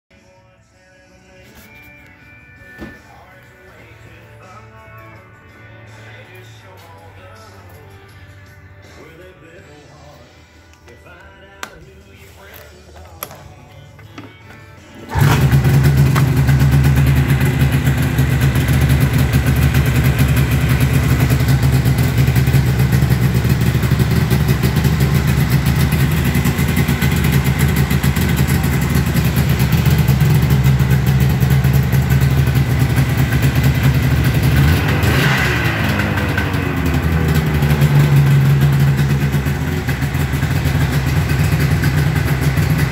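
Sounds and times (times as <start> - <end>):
snowmobile engine starting and idling: 14.6 - 42.9.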